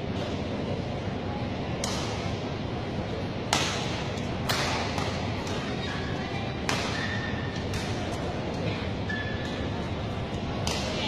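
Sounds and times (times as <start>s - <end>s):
racket hitting shuttlecock: 1.8s - 2.2s, 3.5s - 6.0s, 6.6s - 8.2s, 10.6s - 11.0s
shoes squeaking on court: 9.0s - 9.8s.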